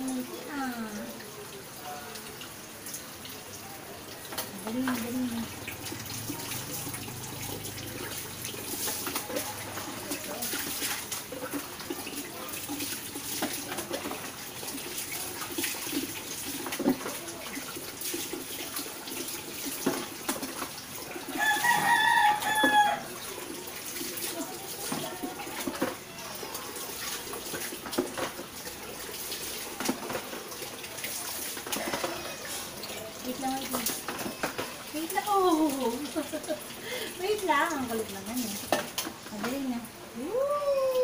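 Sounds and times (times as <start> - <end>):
water poured and splashing: 0.0 - 41.0
rooster crowing: 21.3 - 23.2.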